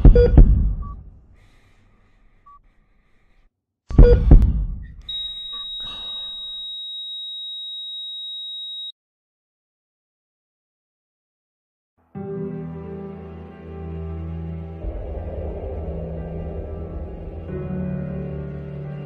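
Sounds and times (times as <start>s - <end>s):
faint short beeps: 5.1s - 6.9s
monitor flatline tone: 5.1s - 8.9s
heavy booming thumps: 14.8s - 19.0s.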